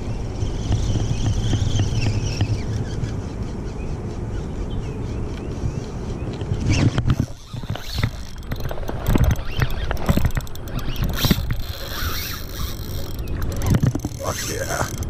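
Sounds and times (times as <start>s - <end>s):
wind rumble: 0.0s - 15.0s
fishing reel clicking and creaking: 7.1s - 15.0s.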